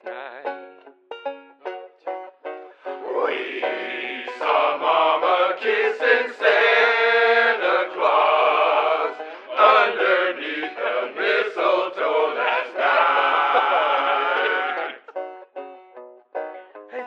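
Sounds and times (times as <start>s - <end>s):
group singing a christmas song: 2.8s - 15.1s.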